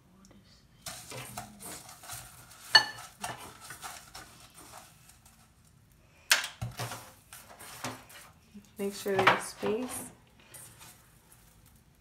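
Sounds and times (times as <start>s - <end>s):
scraping and rustling of crumbs: 0.8s - 6.0s, 6.7s - 12.0s
dishware clinking: 2.7s - 3.4s.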